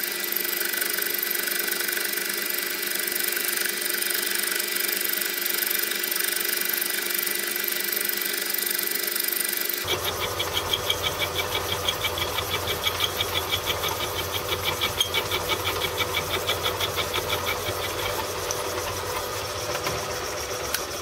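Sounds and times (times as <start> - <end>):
milling machine motor humming: 9.6 - 21.0
rapid even knocking: 9.8 - 20.2.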